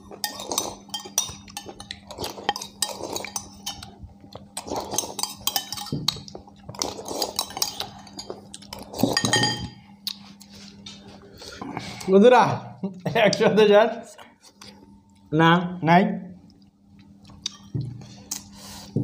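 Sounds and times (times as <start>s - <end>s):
spoons clinking on ceramic bowls: 0.1s - 3.9s, 4.6s - 9.8s.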